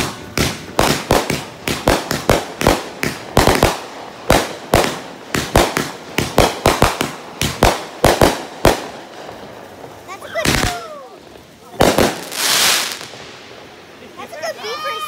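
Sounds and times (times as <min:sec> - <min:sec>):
fireworks bangs: 0:00.0 - 0:15.0.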